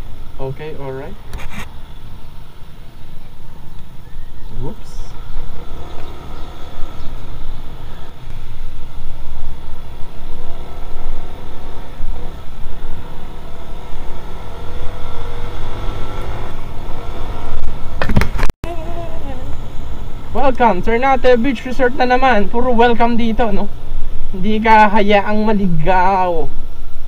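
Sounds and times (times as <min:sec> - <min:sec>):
scooter engine accelerating: 0:04.8 - 0:23.0.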